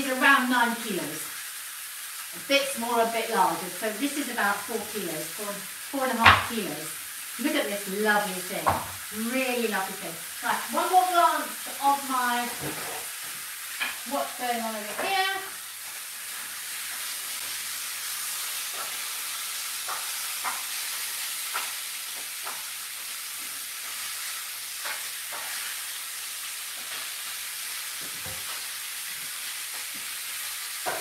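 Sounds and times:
food sizzling in a pan: 0:00.0 - 0:31.0.

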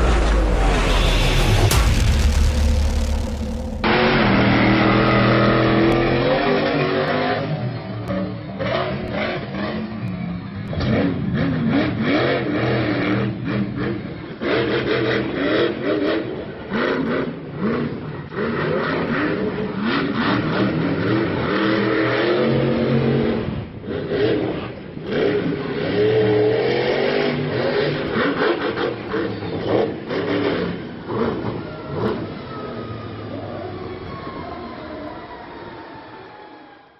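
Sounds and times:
monster truck engine revving: 0:00.0 - 0:33.8.

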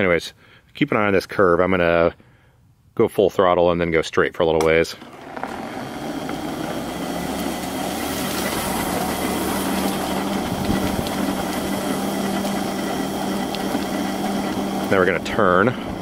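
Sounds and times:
wheels rolling over pavement: 0:04.6 - 0:16.0
wheelchair electric motors running: 0:05.0 - 0:16.0.

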